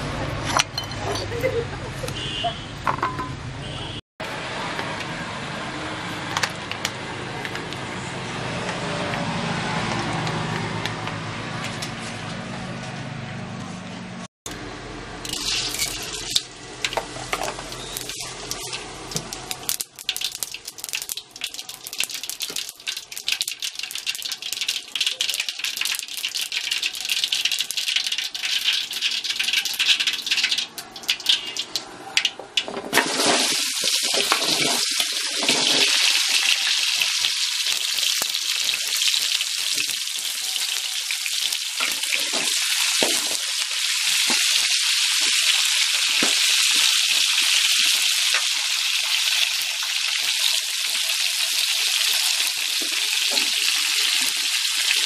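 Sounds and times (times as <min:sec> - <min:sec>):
hot oil crackling and popping: 0:06.3 - 0:07.8, 0:15.2 - 0:55.0
loud frying sizzle: 0:14.5 - 0:55.0.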